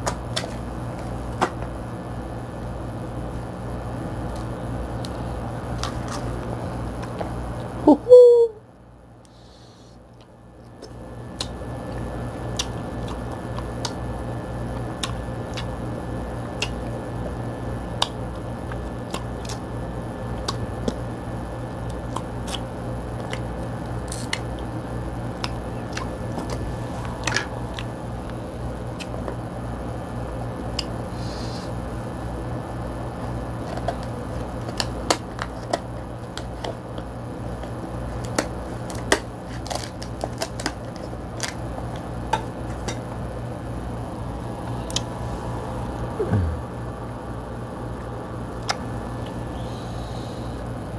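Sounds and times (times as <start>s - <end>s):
low hum: 22.8s - 32.0s, 41.8s - 50.9s
crab shell cracking: 38.2s - 41.6s.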